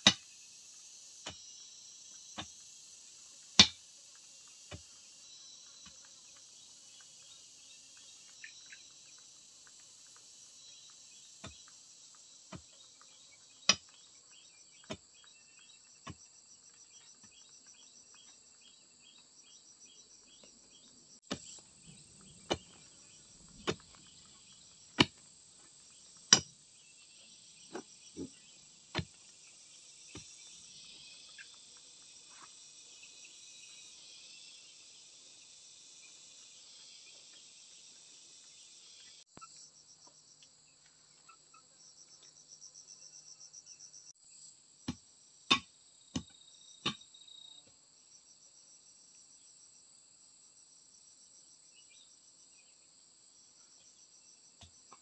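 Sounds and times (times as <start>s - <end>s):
digging bar striking soil: 0.0s - 0.3s, 3.6s - 3.8s, 21.2s - 21.7s, 22.4s - 25.3s, 26.1s - 26.6s, 28.9s - 29.2s, 44.9s - 47.0s
insects chorus: 0.0s - 55.0s.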